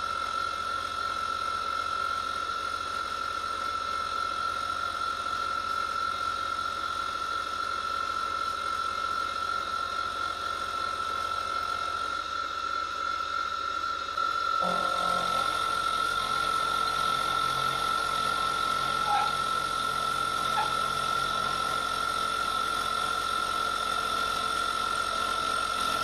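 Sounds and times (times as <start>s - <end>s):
milling spindle whine: 0.0s - 26.0s
end mill grinding metal: 14.6s - 26.0s.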